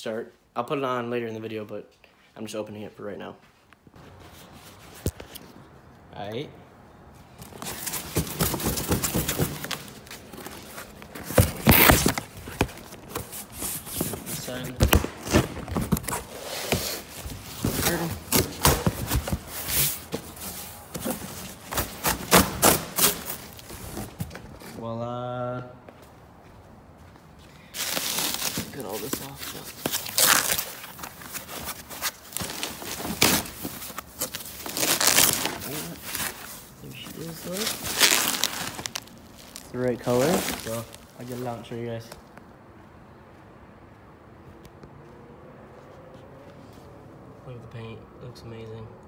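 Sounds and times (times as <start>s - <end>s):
cardboard box handled: 7.4s - 24.4s
cardboard tearing open: 7.5s - 13.6s, 21.0s - 23.8s, 27.9s - 36.5s, 37.5s - 41.0s
bubble wrap rustling and crinkling: 27.7s - 41.8s.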